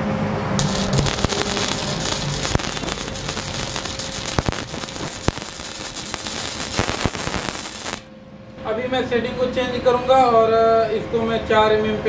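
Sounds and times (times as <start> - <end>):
sharp spatter pops: 0.6 - 8.1
welding arc crackling: 0.6 - 8.1.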